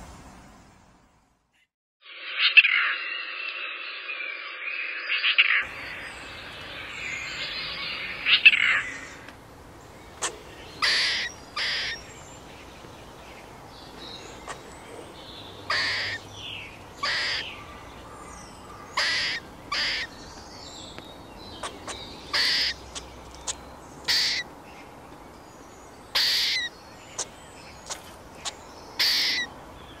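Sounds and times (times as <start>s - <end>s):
squirrel barking alarm calls: 5.6s - 9.3s, 10.0s - 12.9s, 13.8s - 20.2s, 21.5s - 24.5s, 26.1s - 30.0s.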